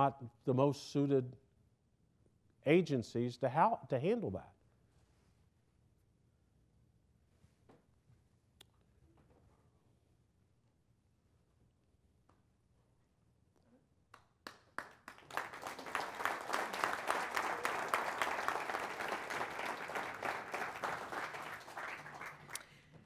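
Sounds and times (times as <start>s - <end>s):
audience applauding: 14.4s - 22.8s.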